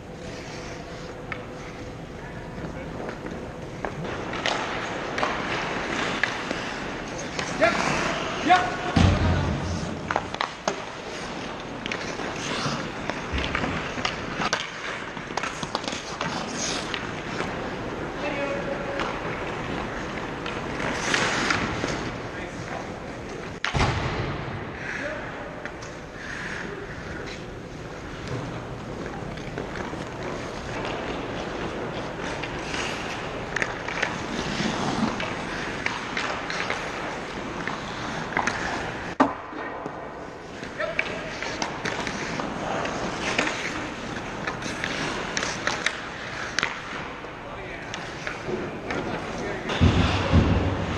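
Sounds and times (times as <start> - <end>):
hockey sticks and puck clacking: 0.0 - 24.3, 25.4 - 50.9
skates scraping on ice: 0.1 - 23.6, 24.8 - 50.9
skates hissing on ice: 15.5 - 17.4.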